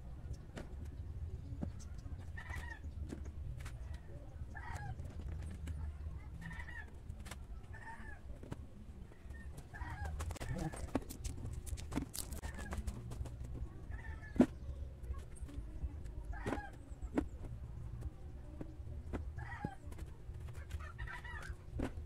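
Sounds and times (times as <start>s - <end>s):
chicken clucking: 9.2s - 11.4s, 19.4s - 21.6s.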